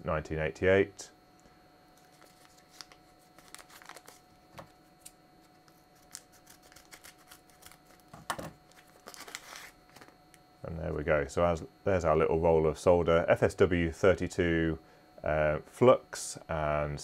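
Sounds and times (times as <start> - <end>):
waxy paper crinkling: 2.0 - 10.1.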